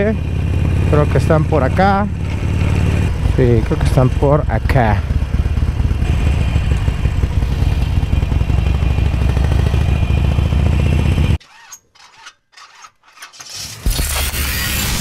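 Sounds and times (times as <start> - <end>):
motorcycle engine running: 0.0 - 11.4.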